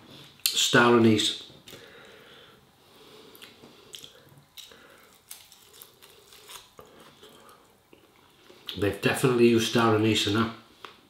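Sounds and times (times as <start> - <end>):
person chewing meat: 3.2 - 8.8.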